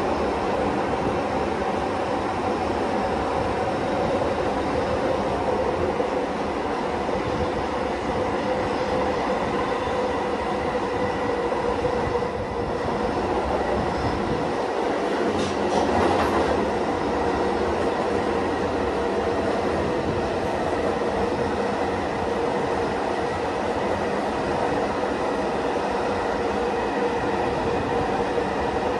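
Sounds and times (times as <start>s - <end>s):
wheels rumbling on rail: 0.0s - 28.9s.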